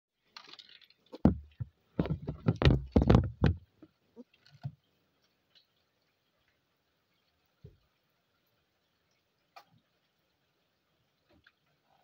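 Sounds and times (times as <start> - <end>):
phone handling knocks and bumps: 1.2 - 3.6.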